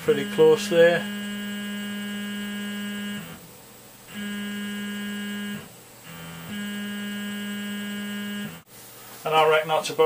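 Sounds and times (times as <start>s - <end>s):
stepper motors whining: 0.0s - 3.4s.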